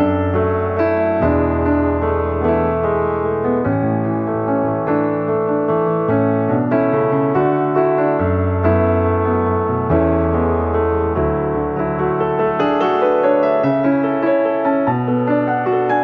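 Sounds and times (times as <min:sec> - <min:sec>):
slow piano chords: 0:00.0 - 0:16.0.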